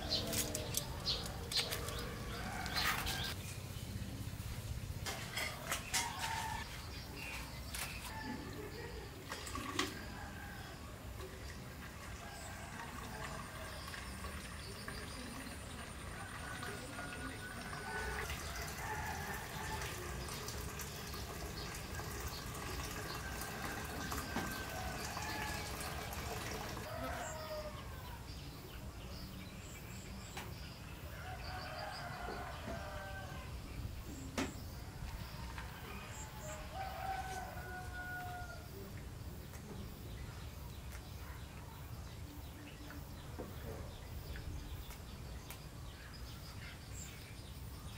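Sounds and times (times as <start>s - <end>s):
birds chirping: 0.0s - 4.4s.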